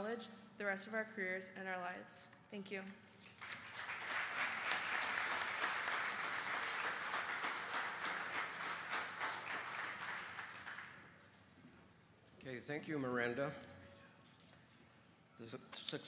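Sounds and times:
audience applauding: 3.3s - 11.1s.

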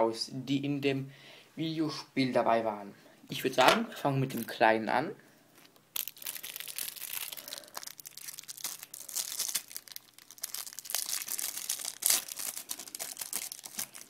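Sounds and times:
plastic wrapper crinkling and tearing: 5.6s - 14.0s.

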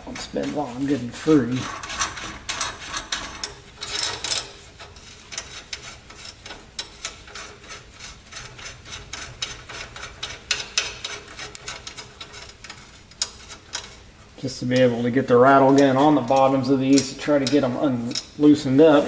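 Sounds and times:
metallic clicks and scraping: 0.0s - 19.0s.

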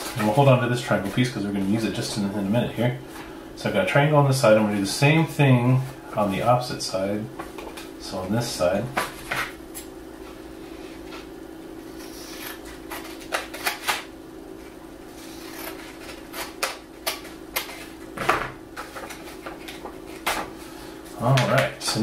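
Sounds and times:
steady low hum: 0.0s - 22.0s
paper rustling: 18.8s - 20.6s.

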